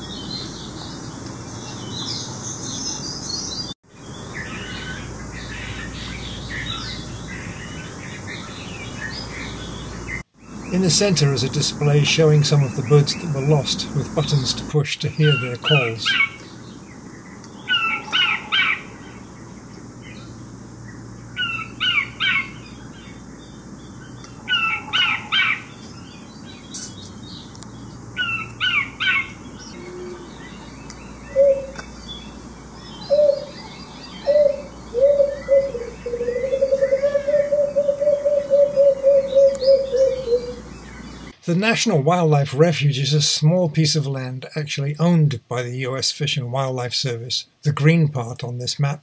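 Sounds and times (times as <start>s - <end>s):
bird chirping calls: 0.0s - 42.0s
dove hooting and cooing: 17.7s - 19.0s, 24.4s - 25.7s, 28.2s - 30.4s, 31.3s - 31.8s, 33.0s - 40.7s.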